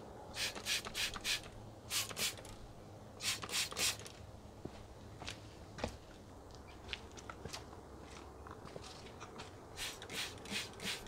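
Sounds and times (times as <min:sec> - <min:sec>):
spray bottle hissing sprays: 0:00.4 - 0:02.5, 0:03.2 - 0:04.1, 0:09.8 - 0:11.0.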